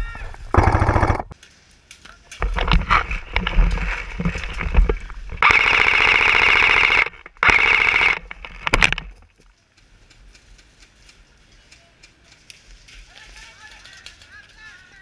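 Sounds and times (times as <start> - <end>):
airsoft rifle firing bursts: 0.5 - 1.3, 5.4 - 8.2.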